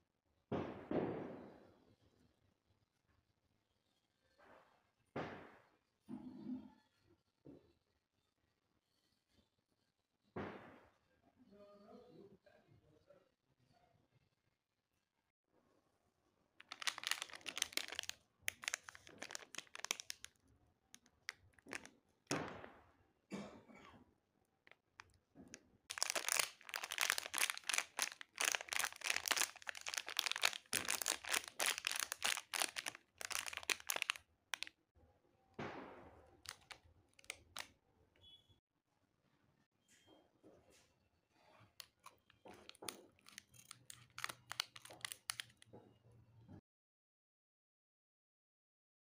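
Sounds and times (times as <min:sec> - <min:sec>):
plastic wrappers crinkling: 0:16.6 - 0:20.4, 0:21.0 - 0:22.6, 0:25.9 - 0:34.7, 0:36.5 - 0:37.7, 0:41.8 - 0:45.6.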